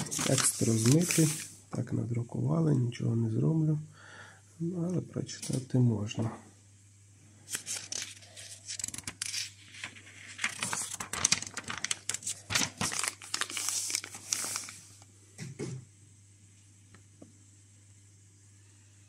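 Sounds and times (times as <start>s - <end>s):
paper booklet rustling and crinkling: 0.0s - 1.6s, 7.4s - 15.1s.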